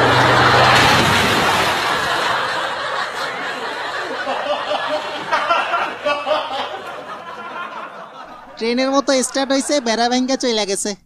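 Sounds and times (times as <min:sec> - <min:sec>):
studio audience laughing: 0:00.0 - 0:10.9.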